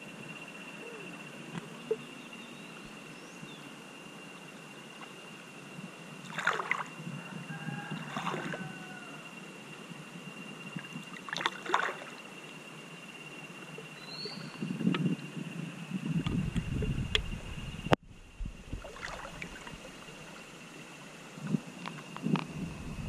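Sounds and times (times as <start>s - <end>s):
river water splashing: 6.2s - 7.0s, 8.0s - 8.8s, 10.8s - 12.5s, 18.6s - 22.0s.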